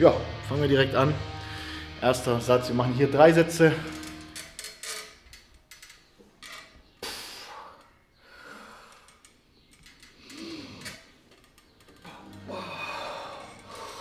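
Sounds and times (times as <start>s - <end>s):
man breathing hard: 1.4s - 2.0s, 7.0s - 9.3s, 12.0s - 14.0s.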